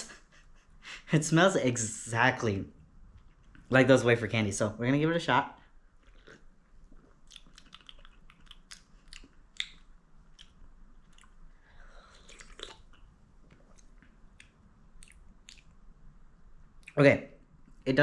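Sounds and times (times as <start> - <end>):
wet mouth clicks and lip smacks: 6.0 - 15.9.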